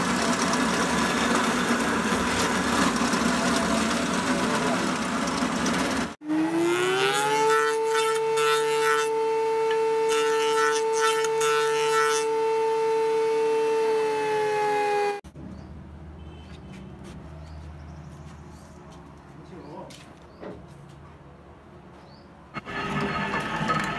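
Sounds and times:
noisy machine: 0:00.0 - 0:15.2, 0:22.6 - 0:23.9
table saw motor whine: 0:00.0 - 0:15.2, 0:22.6 - 0:23.9.

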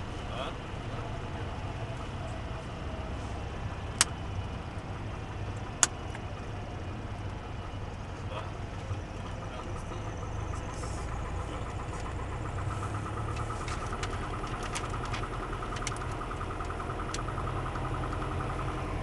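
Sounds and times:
propeller plane engine droning: 0:00.0 - 0:19.0.

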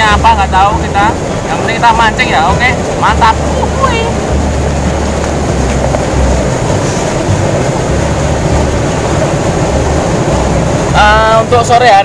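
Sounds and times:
fast-flowing water rushing: 0:00.0 - 0:12.0
wind rumbling on microphone: 0:00.0 - 0:12.0.

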